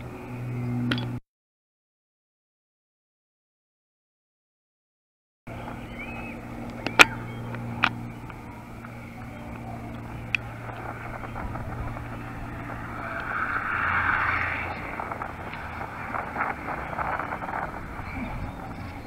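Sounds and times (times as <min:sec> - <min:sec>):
distant propeller plane droning: 0:00.0 - 0:01.2, 0:05.5 - 0:19.0.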